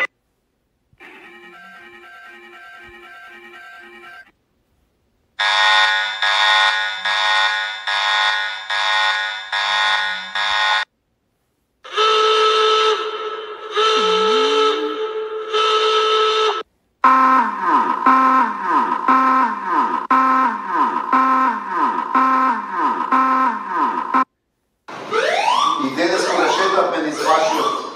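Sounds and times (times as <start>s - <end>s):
buzzy pulsing alarm: 1.0s - 4.3s, 5.4s - 10.9s, 11.9s - 24.3s
steady alarm tone: 1.0s - 4.3s, 5.4s - 10.9s, 11.9s - 24.3s, 24.9s - 27.9s
downward sweeping alarm tone: 5.4s - 10.8s, 11.9s - 24.3s, 24.9s - 27.9s.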